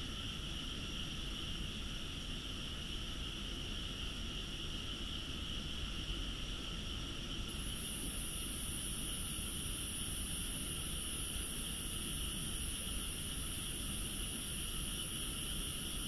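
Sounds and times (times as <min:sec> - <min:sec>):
insects chirping: 0:07.5 - 0:16.0.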